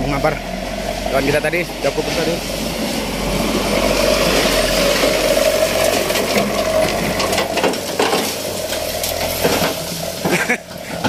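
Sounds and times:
truck engine running: 0.0 - 11.0
gravel spilling onto road: 0.7 - 11.0.

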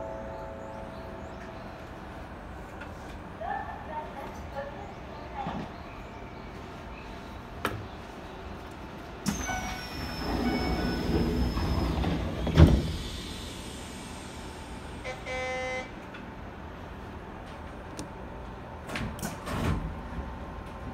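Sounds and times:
train doors closing whine: 9.2 - 16.1
short buzzer tone: 15.0 - 16.0.

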